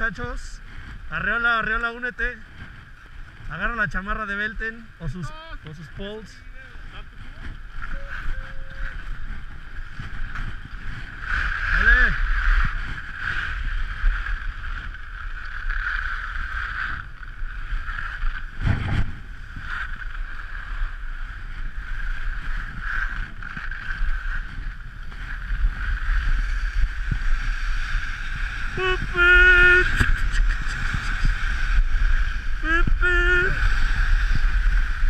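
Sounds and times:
skis sliding over packed snow: 0:00.0 - 0:35.0
wind rumbling on microphone: 0:00.0 - 0:35.0
person shouting: 0:28.7 - 0:30.6, 0:32.6 - 0:33.7.

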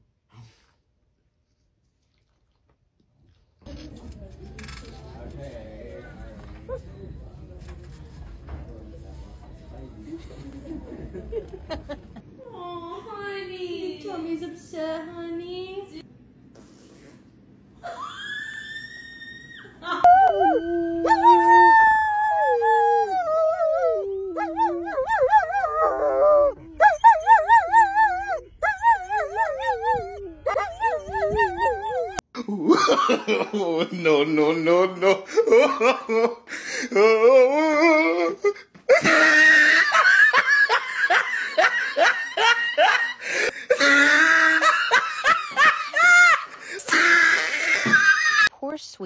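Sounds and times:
dogs howling: 0:20.0 - 0:32.2
person laughing: 0:32.4 - 0:47.4.

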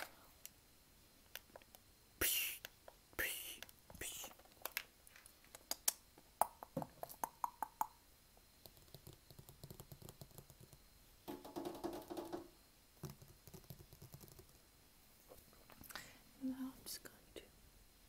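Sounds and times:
hand tapping and clicking: 0:05.6 - 0:08.0, 0:08.6 - 0:14.6.

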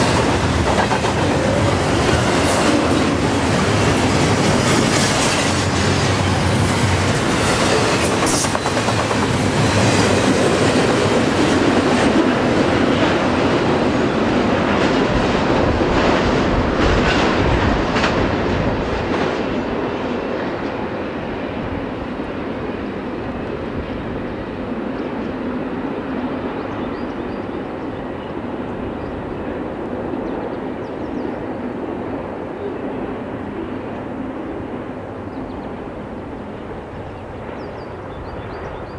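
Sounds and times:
freight train rolling past: 0:00.0 - 0:38.9
steel wheels clicking over rail joints: 0:03.7 - 0:11.0.

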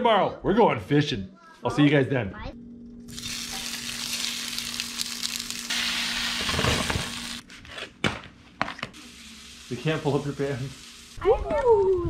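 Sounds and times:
sausages sizzling in a skillet: 0:03.1 - 0:07.4, 0:08.9 - 0:12.0.

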